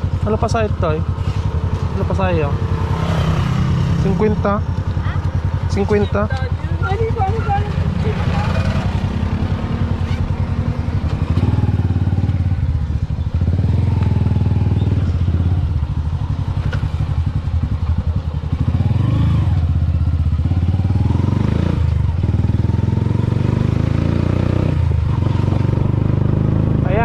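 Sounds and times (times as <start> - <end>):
motorcycle engine running: 0.0 - 27.0.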